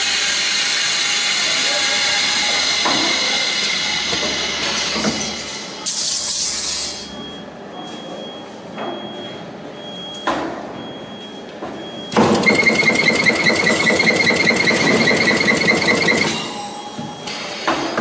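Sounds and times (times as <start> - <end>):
high machine whine: 0.0 - 5.9, 12.2 - 18.0
rapid machine ticking: 12.3 - 16.4.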